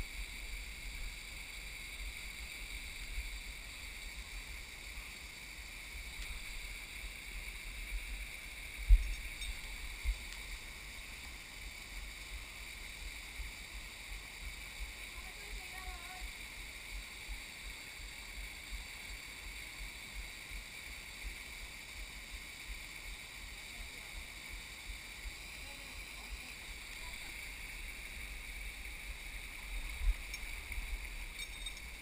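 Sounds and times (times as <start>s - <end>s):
waterfall pouring over rock: 0.0s - 32.0s
wind rumble on microphone: 8.8s - 10.3s.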